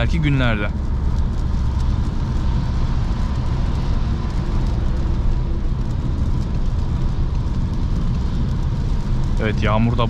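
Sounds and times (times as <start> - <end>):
rain and spray hiss: 0.0 - 10.0
tyre and road rumble: 0.0 - 10.0.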